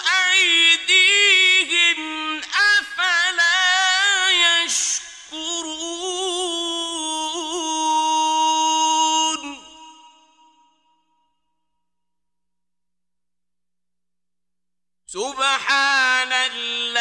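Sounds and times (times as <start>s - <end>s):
man chanting melodically: 0.0s - 10.6s, 15.1s - 17.0s.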